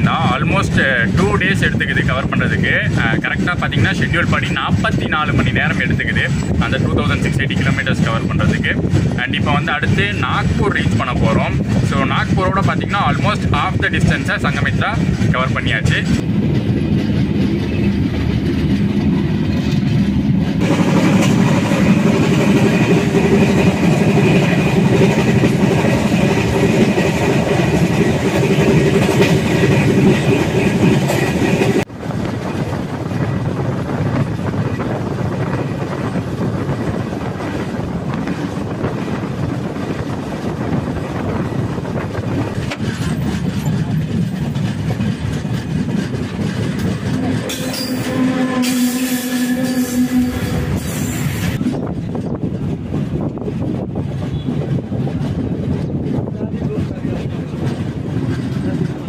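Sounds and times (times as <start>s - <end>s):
train rumbling on track: 0.0s - 59.0s.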